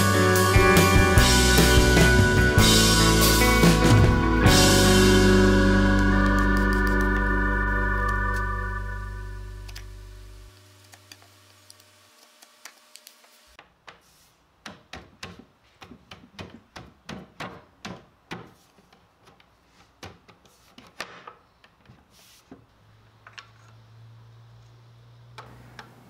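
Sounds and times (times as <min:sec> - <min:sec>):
wooden wedges tapped: 0:14.6 - 0:22.0.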